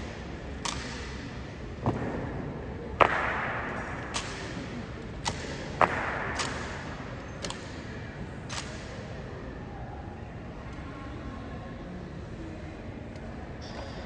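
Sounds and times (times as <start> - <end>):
rifle clacks and slaps echoing: 0.5 - 9.0.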